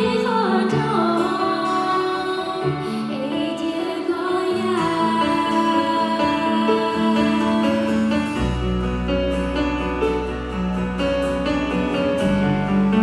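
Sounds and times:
woman singing: 0:00.0 - 0:08.5
acoustic guitar: 0:00.0 - 0:13.0
keyboard: 0:00.0 - 0:13.0
drums: 0:04.7 - 0:13.0.

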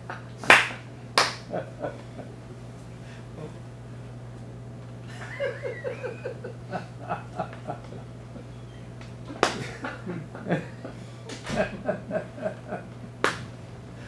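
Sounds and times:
audience laughter: 0:05.1 - 0:08.5, 0:09.5 - 0:13.0.

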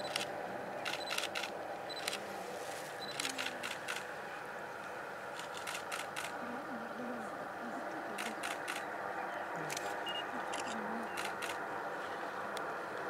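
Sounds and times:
low background hum: 0:00.0 - 0:13.0
camera shutters clicking: 0:00.1 - 0:02.2, 0:05.4 - 0:06.4.

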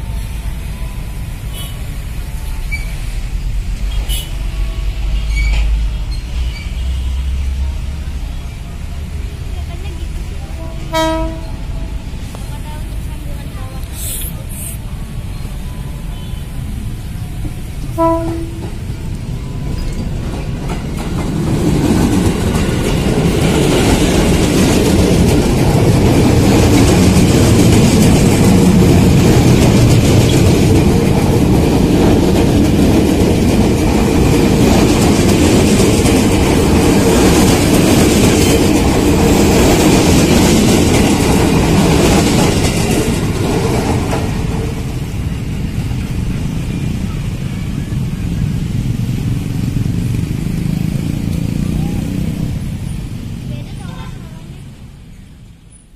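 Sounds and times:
train horn toot: 0:00.8 - 0:01.9, 0:03.9 - 0:05.7, 0:10.5 - 0:11.7, 0:17.8 - 0:18.8
train wheels clattering on rails: 0:17.2 - 0:54.3.

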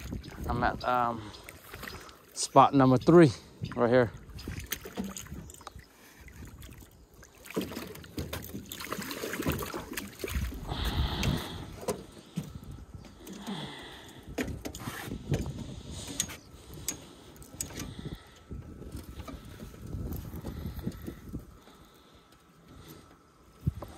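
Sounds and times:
fish splashing at water surface: 0:06.3 - 0:11.6.

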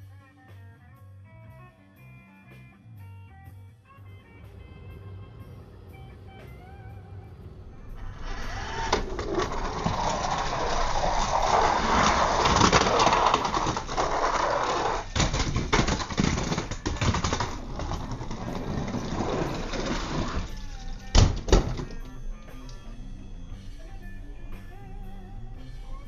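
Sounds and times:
toy car wheels rattling on track: 0:08.0 - 0:21.1.

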